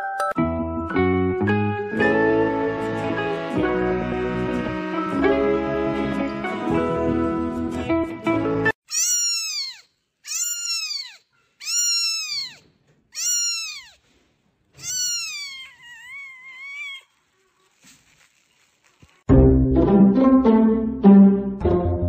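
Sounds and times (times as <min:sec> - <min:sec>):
background music: 0:00.0 - 0:08.8, 0:19.3 - 0:22.0
kitten meowing: 0:08.9 - 0:12.6, 0:13.2 - 0:14.0, 0:14.8 - 0:17.1.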